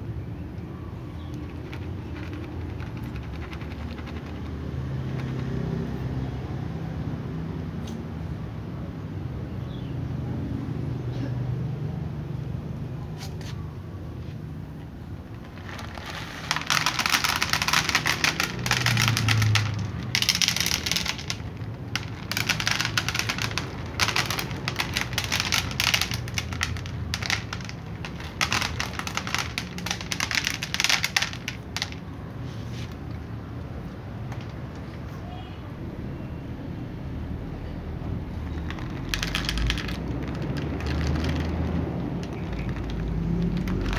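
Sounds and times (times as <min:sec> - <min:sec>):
dry kibble rattling onto a tray: 0:01.2 - 0:05.7, 0:15.2 - 0:32.1, 0:38.4 - 0:43.9.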